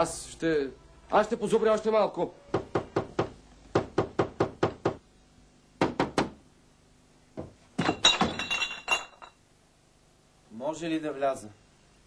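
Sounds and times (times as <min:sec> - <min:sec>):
knocking on a door: 0:02.5 - 0:05.0, 0:05.8 - 0:06.4, 0:07.4 - 0:07.6.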